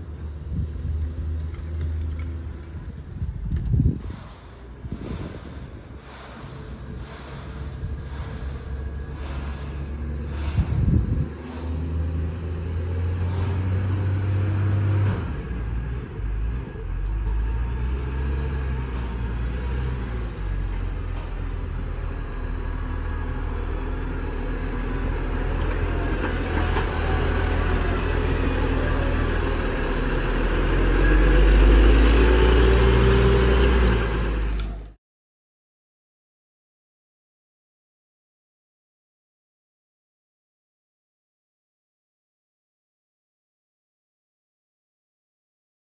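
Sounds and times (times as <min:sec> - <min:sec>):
diesel engine running: 0:00.0 - 0:35.0.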